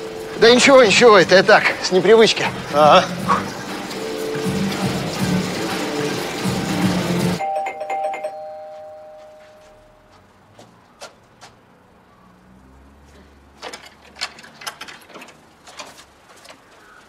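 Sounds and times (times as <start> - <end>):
two-tone doorbell chime: 7.3 - 10.1.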